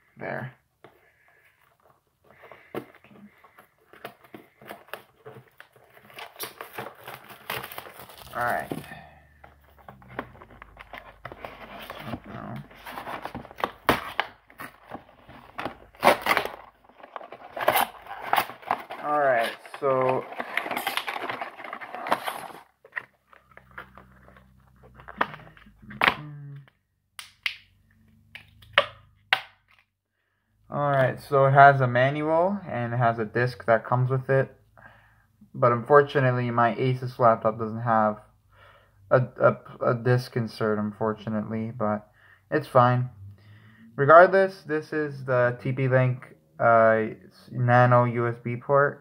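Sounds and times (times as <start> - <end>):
packaging rustling and crinkling: 1.8 - 25.7.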